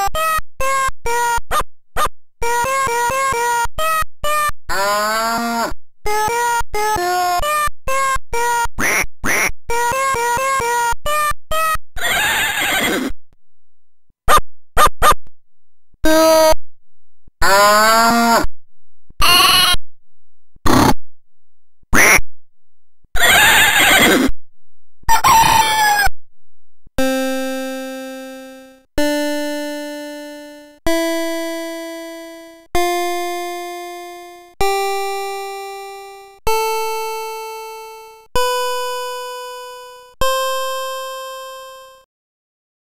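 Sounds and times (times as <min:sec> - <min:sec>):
digitised animal calls: 0:00.0 - 0:13.2, 0:14.3 - 0:15.2, 0:17.4 - 0:18.5, 0:19.2 - 0:19.8, 0:20.6 - 0:21.0, 0:21.9 - 0:22.2, 0:23.2 - 0:24.3, 0:25.1 - 0:26.1
square-wave notes climbing a scale: 0:27.0 - 0:42.0.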